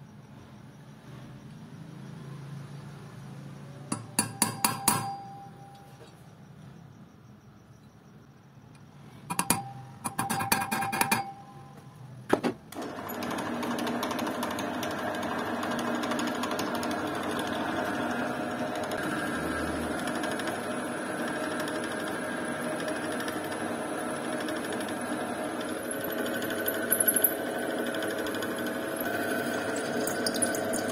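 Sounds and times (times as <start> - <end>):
drill press cutting aluminium: 3.9 - 5.6, 12.7 - 30.9.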